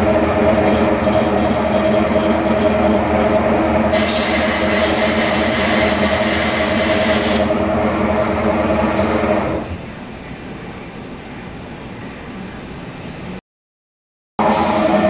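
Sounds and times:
lathe running hum: 0.0s - 9.5s, 14.4s - 15.0s
loud hiss: 3.9s - 7.5s.

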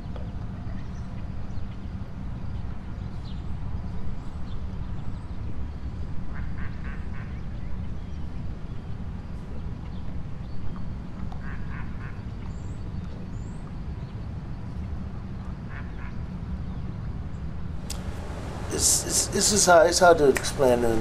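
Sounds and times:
low rumble: 17.8s - 19.9s
ducks quacking: 17.9s - 21.0s.

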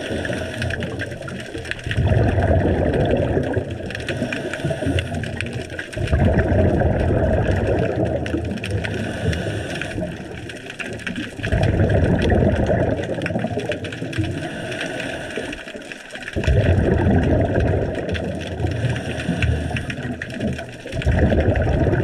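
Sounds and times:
faint clicks: 0.0s - 2.0s, 3.1s - 6.3s, 7.0s - 16.6s, 17.3s - 22.0s
underwater bubbles rumbling: 0.0s - 22.0s
steady hiss: 8.9s - 10.4s, 14.3s - 15.8s.

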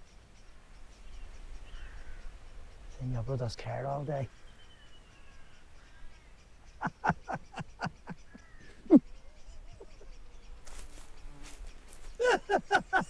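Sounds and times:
man laughing heartily: 6.8s - 10.2s, 12.0s - 13.0s.

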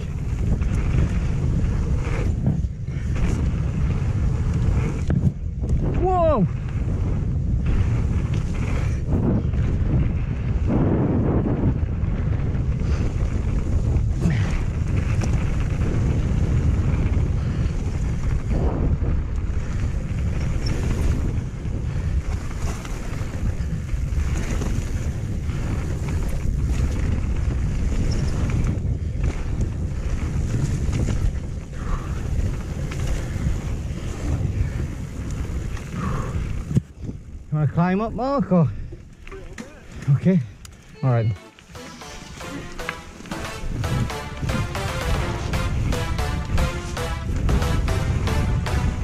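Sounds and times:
wind rushing over microphone: 0.0s - 39.0s.

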